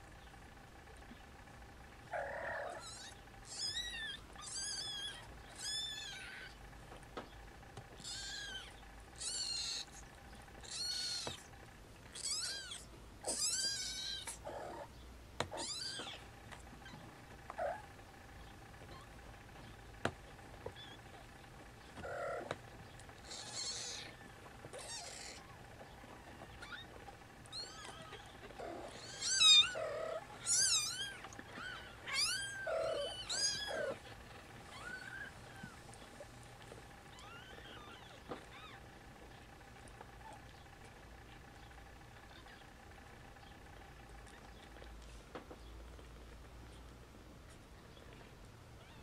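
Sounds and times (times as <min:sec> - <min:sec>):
kittens mewing: 0:02.1 - 0:06.6, 0:07.9 - 0:17.9, 0:20.6 - 0:40.5, 0:42.1 - 0:43.0.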